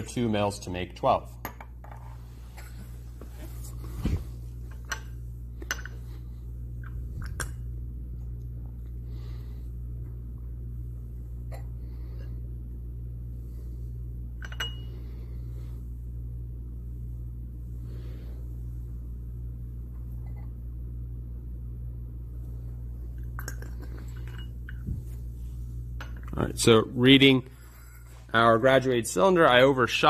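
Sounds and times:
steady low hum: 0:00.0 - 0:30.0
glass clinks: 0:14.4 - 0:14.9.

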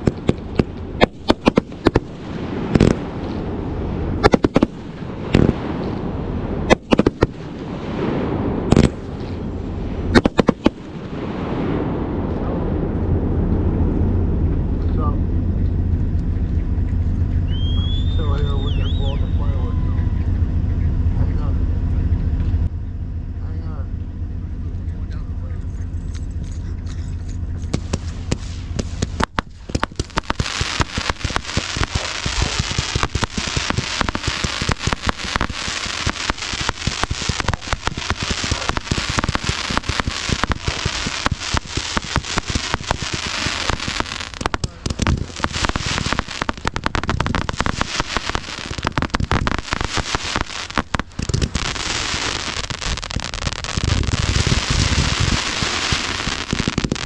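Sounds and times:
fireworks crackling: 0:00.0 - 0:20.6, 0:25.3 - 0:57.0
fireworks booming: 0:00.0 - 0:25.4, 0:26.3 - 0:57.0
low steady rumble: 0:00.0 - 0:57.0.

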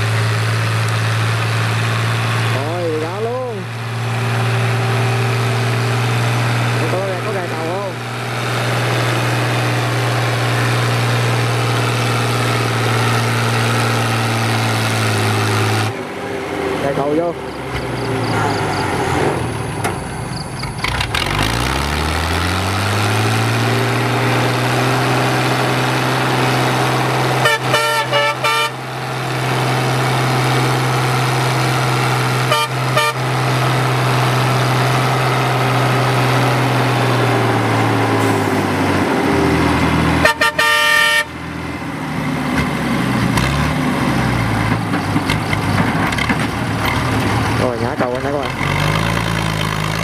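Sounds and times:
tractor diesel engine running: 0:00.0 - 0:50.0
vehicle horn toots: 0:27.4 - 0:28.8, 0:32.4 - 0:33.3, 0:40.2 - 0:41.4.

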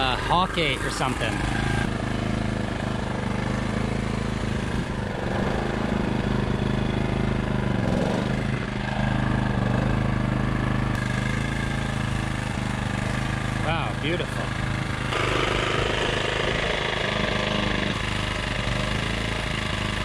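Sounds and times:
generator engine running: 0:00.0 - 0:20.0.

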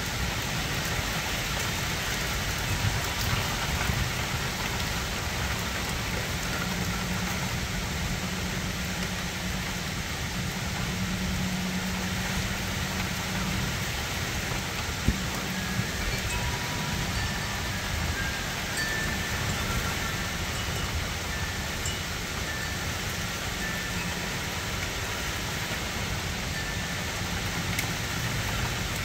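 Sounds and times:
rain falling on trees: 0:00.0 - 0:29.0.

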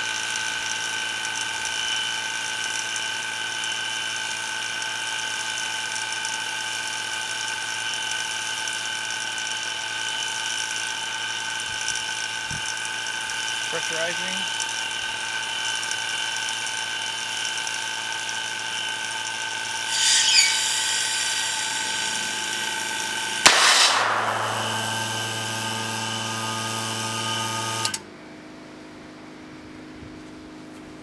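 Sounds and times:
electric pump whining: 0:11.2 - 0:28.0
vacuum cannon crack: 0:22.0 - 0:28.0
rush of air: 0:23.4 - 0:26.4.

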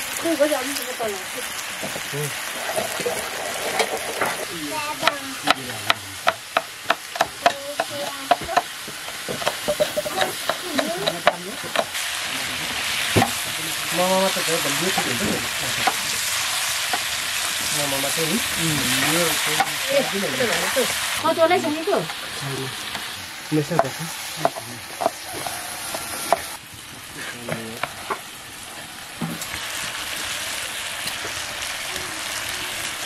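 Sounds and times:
meat sizzling in a pan: 0:00.0 - 0:33.0
utensil clinking against pan: 0:09.4 - 0:11.9.

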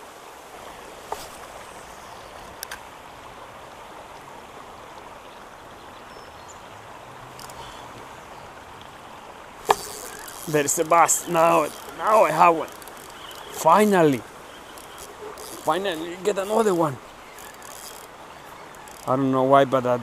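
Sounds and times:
light rain on a pond: 0:00.0 - 0:20.0
faint clicks: 0:02.3 - 0:02.9, 0:07.3 - 0:08.1, 0:09.6 - 0:19.1.

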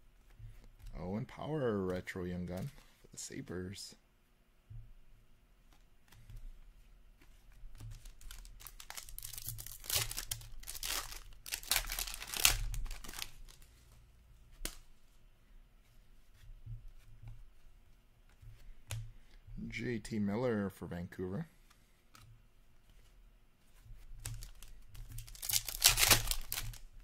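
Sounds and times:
cards being handled: 0:00.2 - 0:03.5, 0:05.6 - 0:15.2, 0:21.6 - 0:27.0
foil wrapper tearing and crinkling: 0:08.2 - 0:13.5, 0:24.2 - 0:26.9.

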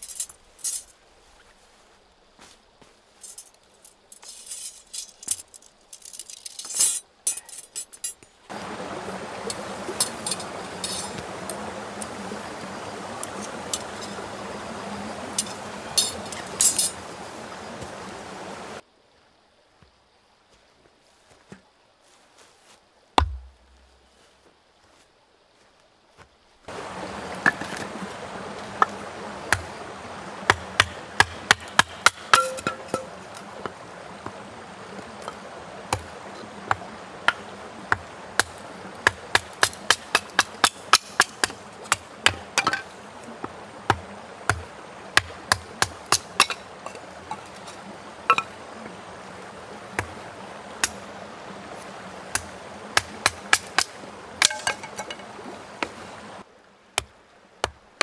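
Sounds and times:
steady background hiss: 0:00.0 - 0:58.0
hatchet splitting wood: 0:23.2 - 0:23.5.

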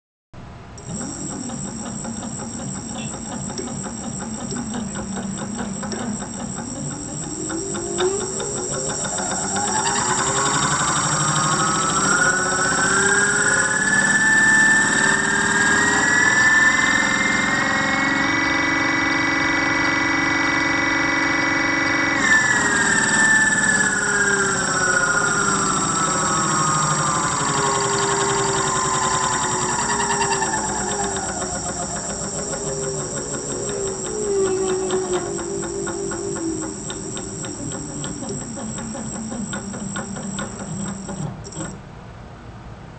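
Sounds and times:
electric motor whine: 0:00.8 - 0:41.8.

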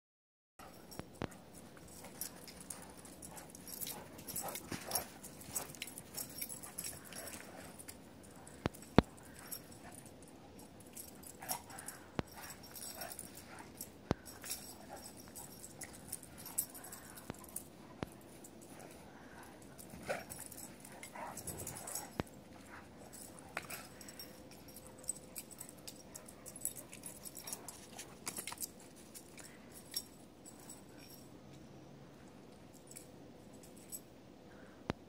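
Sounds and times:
light clicks and rustles: 0:00.6 - 0:35.0.

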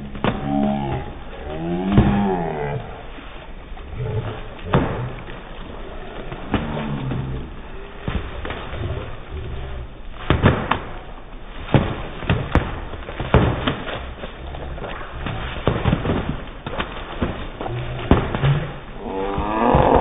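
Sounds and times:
splashing water: 0:00.0 - 0:20.0
foam noodles smacking: 0:06.2 - 0:20.0.

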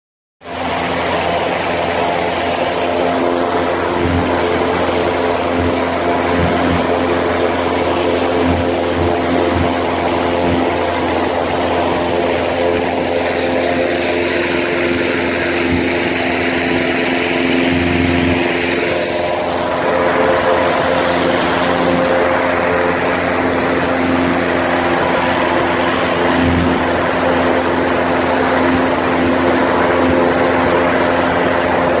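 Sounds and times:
motorboat engine hum: 0:00.4 - 0:32.0
wind: 0:00.4 - 0:32.0
rushing water: 0:00.5 - 0:32.0.

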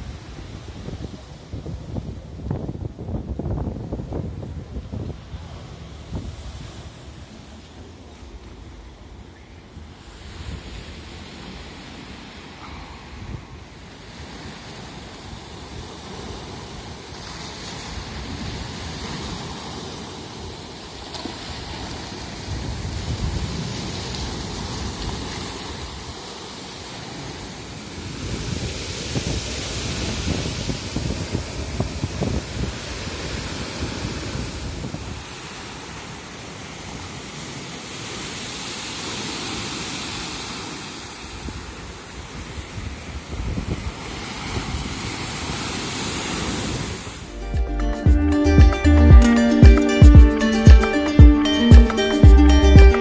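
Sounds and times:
wind buffeting microphone: 0:00.0 - 0:37.6, 0:41.3 - 0:47.2
sea waves breaking on rocks: 0:09.9 - 0:47.3.

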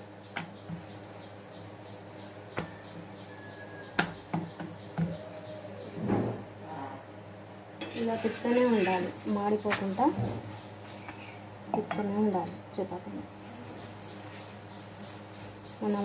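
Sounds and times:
small bird chirping: 0:13.6 - 0:16.0.

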